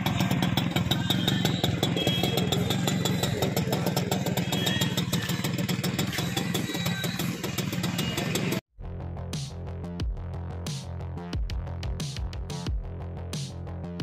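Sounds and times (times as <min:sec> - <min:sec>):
moped engine idling: 0:00.0 - 0:08.6.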